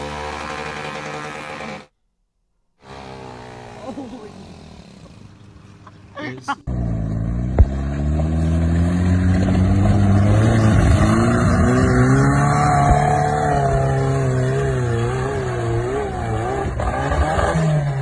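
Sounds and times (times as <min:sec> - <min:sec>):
off-road vehicle engine revving: 0:00.0 - 0:01.9, 0:02.8 - 0:05.9, 0:06.6 - 0:18.0.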